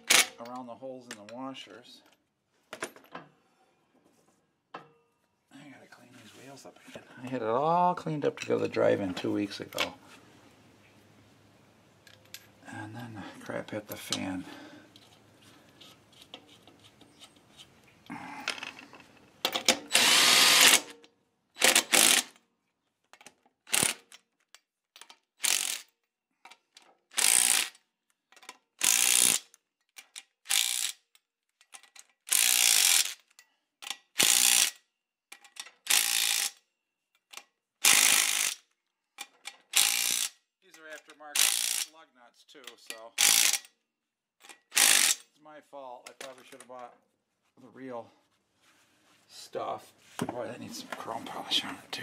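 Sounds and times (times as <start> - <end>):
impact driver bursts: 19.7 - 20.9, 21.6 - 22.4, 27.2 - 27.7, 28.8 - 29.4, 34.2 - 34.7, 37.8 - 38.6, 43.2 - 43.7, 44.7 - 45.2.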